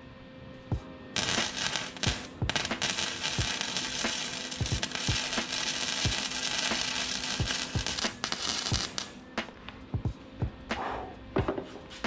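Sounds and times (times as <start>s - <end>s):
arc welding crackle: 1.2s - 9.2s.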